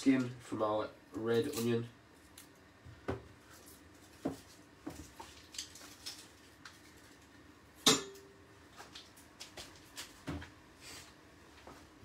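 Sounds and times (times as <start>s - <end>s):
onion skin crackling: 3.6s - 7.4s.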